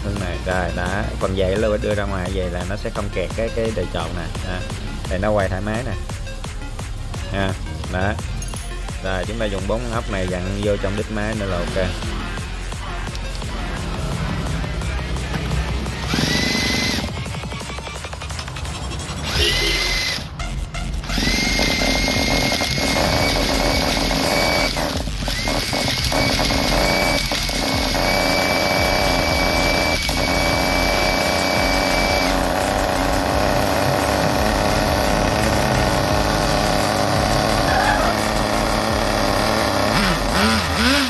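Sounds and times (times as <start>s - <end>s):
small engine running: 13.7s - 20.3s, 21.0s - 41.0s
cordless drill whining: 16.0s - 18.1s, 19.2s - 20.3s, 21.0s - 41.0s.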